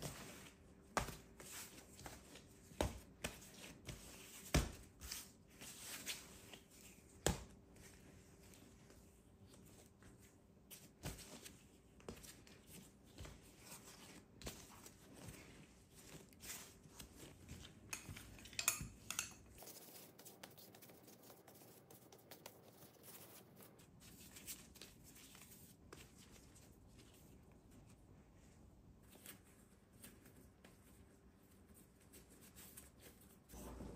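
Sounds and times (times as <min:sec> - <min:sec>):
kitchen utensils and dishes clicking: 0:17.9 - 0:19.6.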